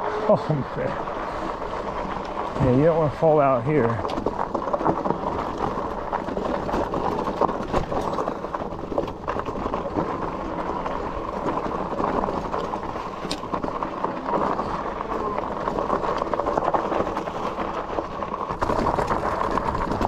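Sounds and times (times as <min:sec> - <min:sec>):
bike rattling over bumps: 0:00.0 - 0:20.0
bike tyres rolling on dirt trail: 0:00.0 - 0:20.0
gravel crunching: 0:00.0 - 0:20.0.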